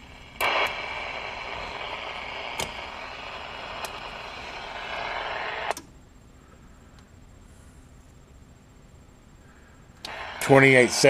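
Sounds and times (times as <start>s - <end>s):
radio static hiss: 0.0s - 8.7s, 9.3s - 11.0s
faint clicks: 3.8s - 4.2s.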